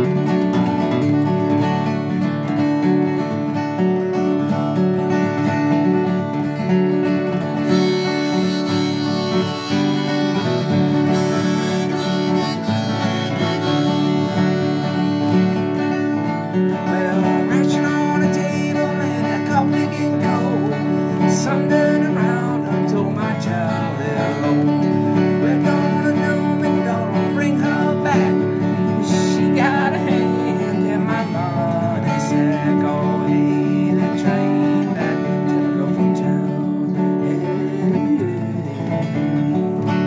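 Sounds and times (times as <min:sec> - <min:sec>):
acoustic guitar flatpicking: 0:00.0 - 0:40.0
harmonica chords: 0:07.0 - 0:33.9.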